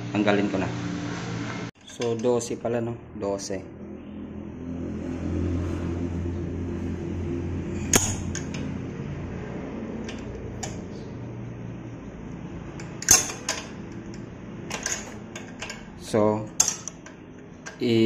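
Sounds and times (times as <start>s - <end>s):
steady low hum: 2.5s - 18.0s
metal tool clicking on bolt: 7.9s - 8.7s, 10.0s - 10.9s, 12.8s - 15.9s, 16.6s - 17.8s.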